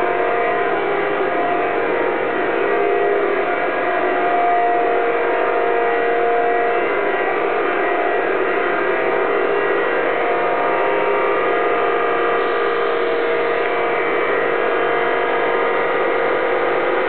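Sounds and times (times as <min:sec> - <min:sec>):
machinery drone: 0:00.0 - 0:17.0
steady humming tones: 0:00.0 - 0:17.0.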